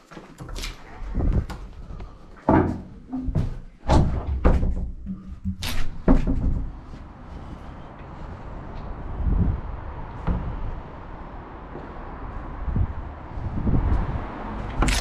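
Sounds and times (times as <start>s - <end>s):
irregular knocks and thumps: 1.1s - 7.0s.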